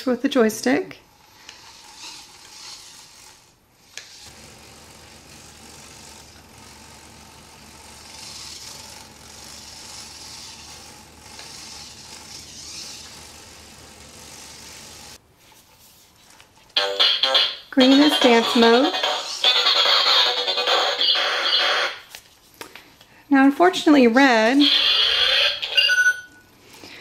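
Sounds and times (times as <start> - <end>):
toy robot motors whirring: 1.1 - 15.2, 16.8 - 22.1, 24.2 - 26.1.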